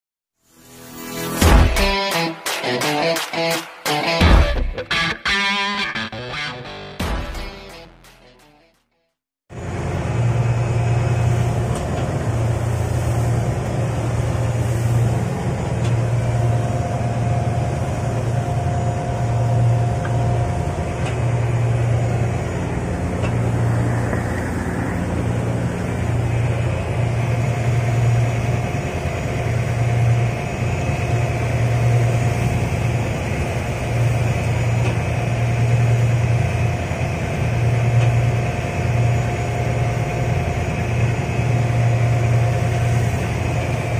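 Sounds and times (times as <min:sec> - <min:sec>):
boat engine droning: 0:09.5 - 0:43.9.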